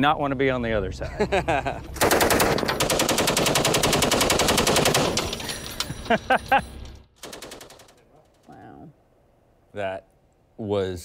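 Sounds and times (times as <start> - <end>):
machine gun firing: 2.0 - 5.5, 7.2 - 8.0.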